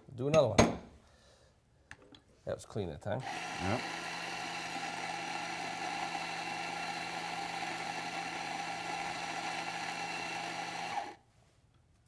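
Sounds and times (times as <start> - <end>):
coffee grinder running: 3.2 - 11.2.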